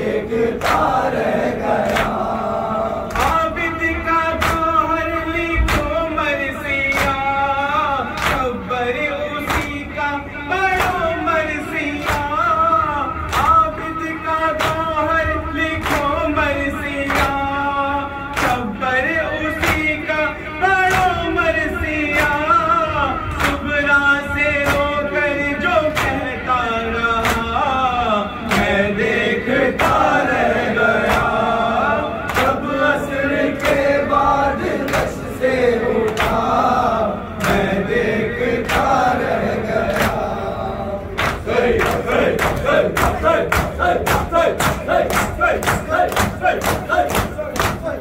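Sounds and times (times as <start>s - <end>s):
crowd chanting: 0.0s - 3.7s, 28.0s - 48.0s
man singing over microphone: 0.0s - 48.0s
chest-beating slaps: 41.2s - 48.0s.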